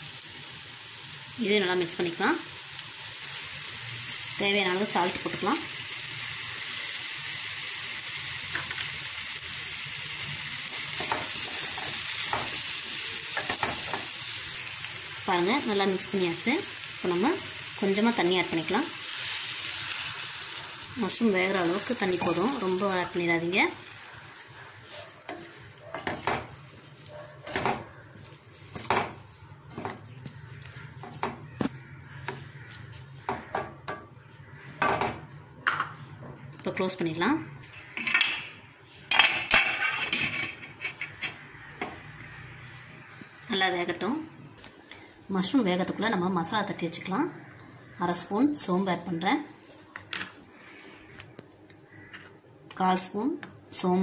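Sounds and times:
mushrooms sizzling in oil: 0:00.0 - 0:35.4
spatula scraping a pan: 0:39.1 - 0:41.4.

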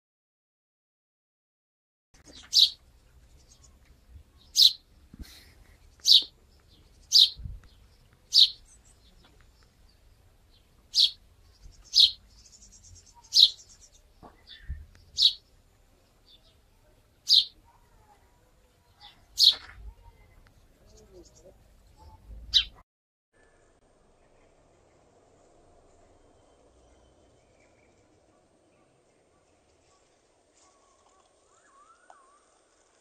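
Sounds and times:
robin sharp calls: 0:02.3 - 0:02.8, 0:03.4 - 0:04.8, 0:05.8 - 0:09.7, 0:10.9 - 0:15.5, 0:17.2 - 0:18.0, 0:19.0 - 0:22.8.

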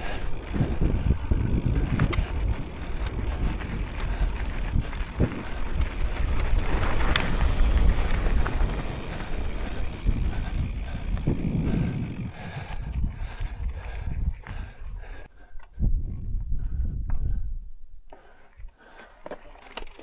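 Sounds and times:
bike knocking and rattling: 0:00.0 - 0:14.7, 0:19.2 - 0:20.0
wind buffeting microphone: 0:00.0 - 0:17.8
tyres rolling over rocks: 0:00.4 - 0:10.3.

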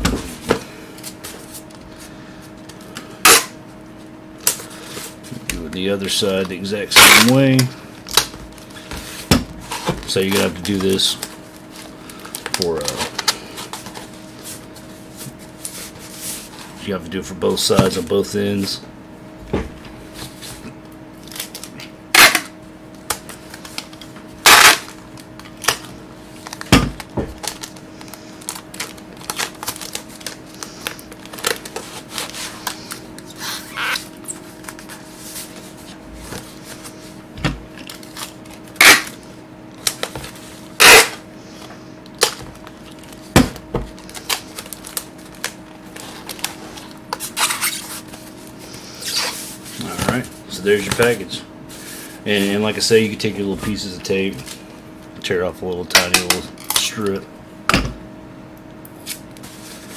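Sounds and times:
packing tape snapping and crackling: 0:05.5 - 0:08.9, 0:09.7 - 0:14.1, 0:21.2 - 0:35.0, 0:37.7 - 0:41.2, 0:42.0 - 0:43.3, 0:43.9 - 0:48.0.

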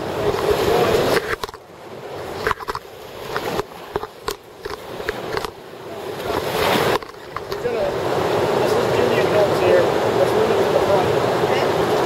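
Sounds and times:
river water rushing: 0:00.0 - 0:12.0
knocks and scrapes: 0:00.2 - 0:01.6, 0:02.3 - 0:05.6.

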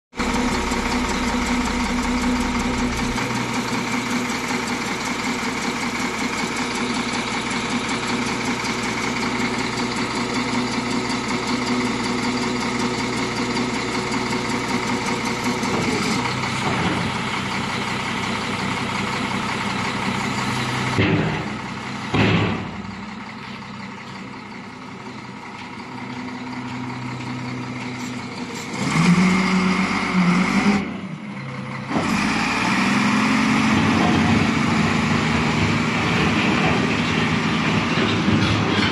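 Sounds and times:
wheel loader diesel engine running: 0:00.1 - 0:38.9.

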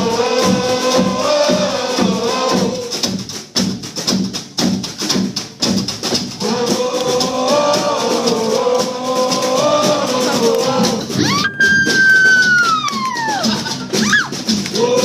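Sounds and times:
upright bass and banjo tune: 0:00.0 - 0:11.4, 0:13.2 - 0:15.0
man singing: 0:06.4 - 0:11.2, 0:14.8 - 0:15.0.

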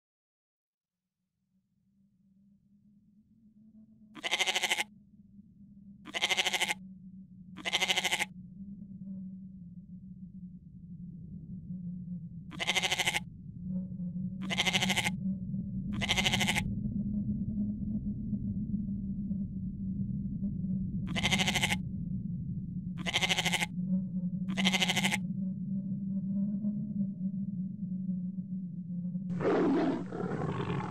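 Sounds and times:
animal bleating: 0:04.2 - 0:04.9, 0:06.1 - 0:06.8, 0:07.6 - 0:08.3, 0:12.5 - 0:13.2, 0:14.4 - 0:15.2, 0:16.0 - 0:16.6, 0:21.1 - 0:21.8, 0:23.0 - 0:23.7, 0:24.5 - 0:25.2, 0:29.4 - 0:30.9
low hum: 0:13.3 - 0:21.2.

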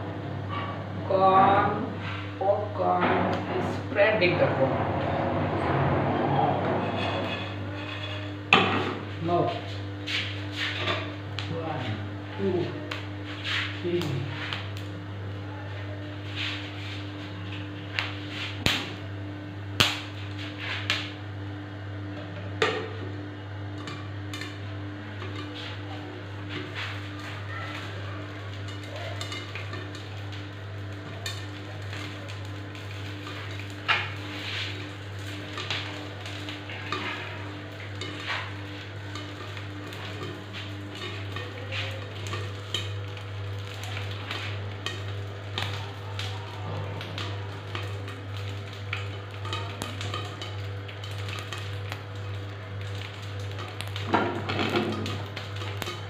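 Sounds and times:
popcorn kernels popping: 0:19.7 - 0:20.2, 0:23.7 - 0:56.0
oil sizzling in a pan: 0:23.8 - 0:56.0.

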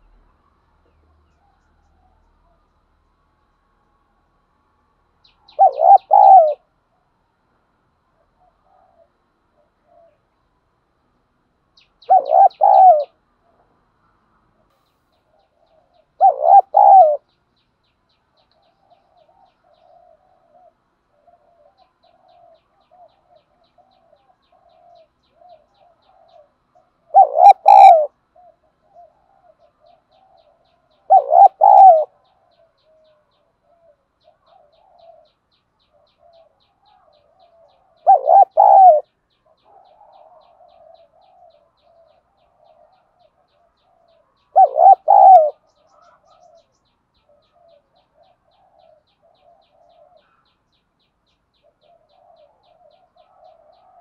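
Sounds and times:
dove cooing: 0:05.4 - 0:06.7, 0:08.2 - 0:10.3, 0:12.0 - 0:13.7, 0:15.3 - 0:17.3, 0:18.6 - 0:50.5, 0:51.5 - 0:54.0.

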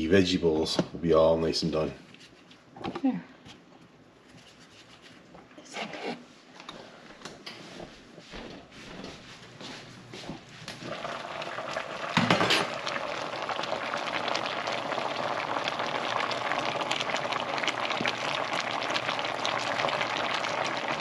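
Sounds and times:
stew bubbling in a pot: 0:10.7 - 0:21.0
knock on pot: 0:12.2 - 0:12.7.

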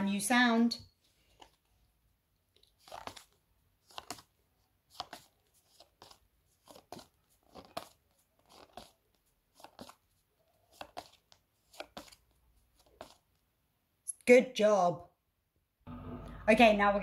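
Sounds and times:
flashcards flipping: 0:01.0 - 0:13.4.

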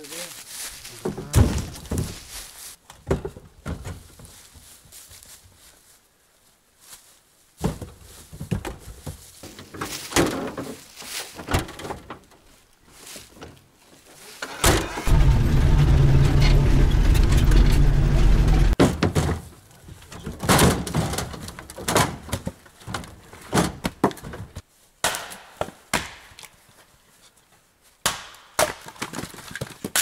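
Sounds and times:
knocks and thuds: 0:01.0 - 0:02.2, 0:03.0 - 0:04.2, 0:07.6 - 0:10.6, 0:14.7 - 0:19.4
loud low rumble: 0:15.1 - 0:18.8.

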